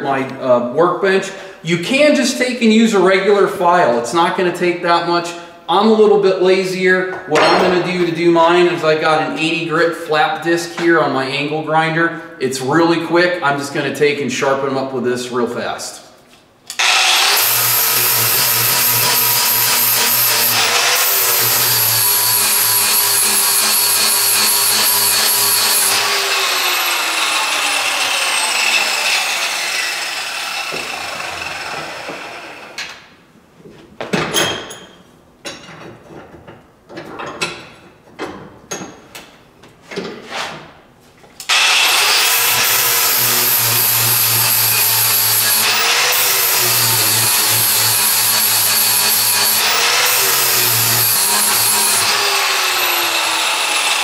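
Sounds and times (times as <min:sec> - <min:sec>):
angle grinder grinding steel: 0:16.7 - 0:32.8, 0:41.5 - 0:54.0
grinder winding down whine: 0:16.7 - 0:32.8, 0:41.5 - 0:54.0
knocks and scrapes: 0:39.7 - 0:41.3.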